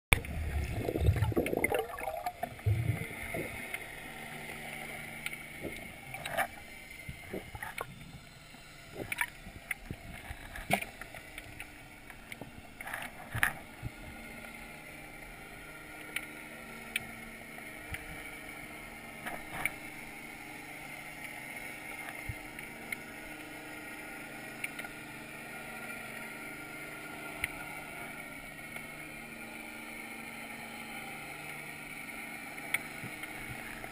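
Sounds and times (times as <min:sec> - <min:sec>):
rushing water: 0:00.1 - 0:03.8
steady underwater hum: 0:00.1 - 0:33.9.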